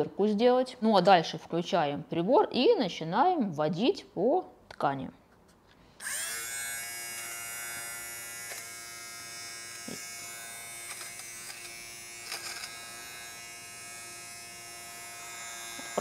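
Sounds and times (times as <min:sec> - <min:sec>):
fabric shaver motor whine: 0:06.0 - 0:16.0.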